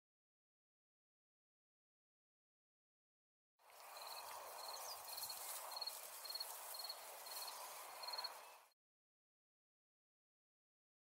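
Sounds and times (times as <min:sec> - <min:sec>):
insect chirping: 0:03.8 - 0:08.4.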